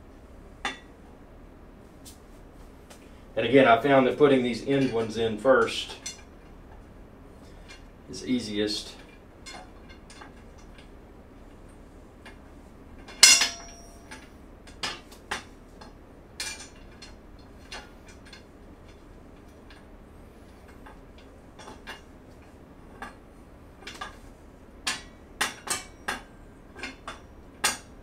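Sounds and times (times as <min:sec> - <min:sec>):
metal parts clinking and tapping: 0:08.9 - 0:10.9, 0:13.0 - 0:19.9, 0:23.8 - 0:28.0.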